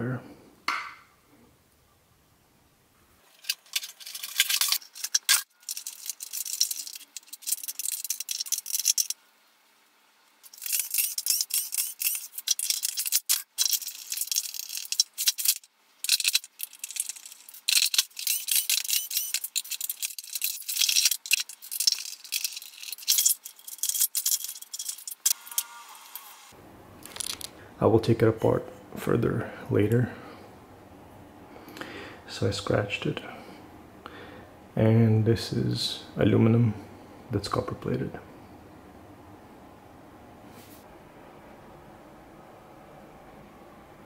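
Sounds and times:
plastic parts and tools clattering: 0:03.2 - 0:09.2, 0:10.4 - 0:25.4, 0:27.0 - 0:27.5.

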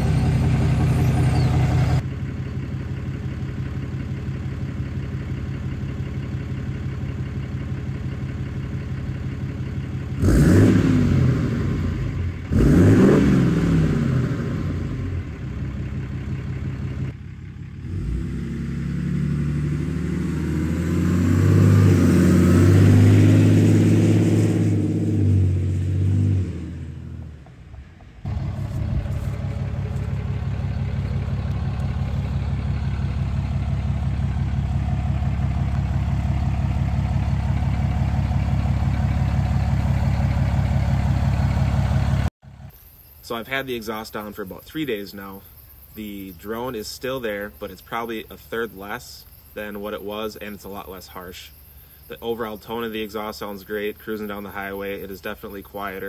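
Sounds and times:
truck driving past: 0:00.0 - 0:04.0, 0:05.2 - 0:42.7
diesel truck engine idling and revving: 0:00.0 - 0:56.0.

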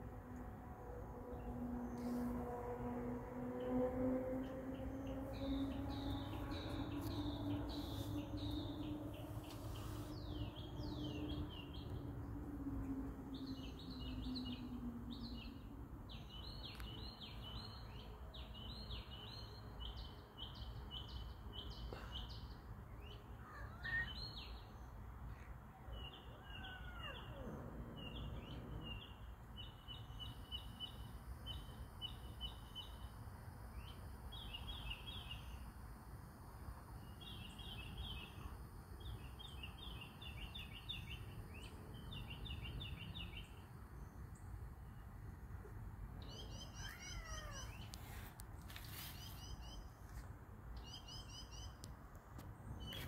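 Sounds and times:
low hum dropping in pitch: 0:00.0 - 0:15.1
birds chirping: 0:03.4 - 0:17.9.

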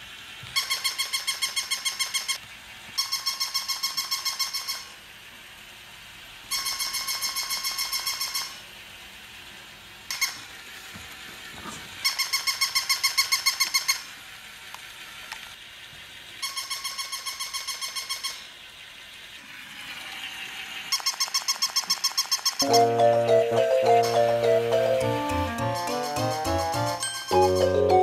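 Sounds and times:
toy dog electronic barking: 0:00.6 - 0:02.4, 0:03.0 - 0:05.0, 0:06.5 - 0:08.6, 0:12.0 - 0:14.0, 0:16.4 - 0:18.5, 0:20.9 - 0:28.0.

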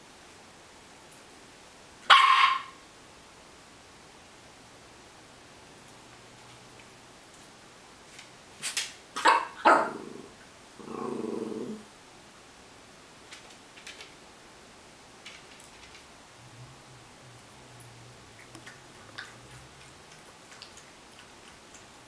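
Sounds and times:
dog barking sharply: 0:02.1 - 0:02.8, 0:09.2 - 0:09.9
dog growling: 0:09.7 - 0:11.9.

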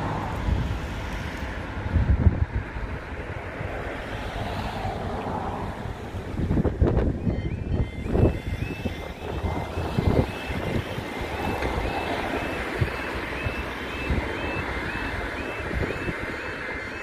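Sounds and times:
level crossing alarm warble: 0:07.0 - 0:17.0.

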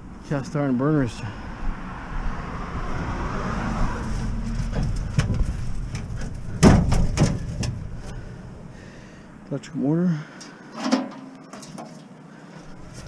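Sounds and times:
low rumble of road noise: 0:00.0 - 0:13.0
metal scrap clanking and scraping: 0:04.0 - 0:08.2, 0:10.4 - 0:12.2.

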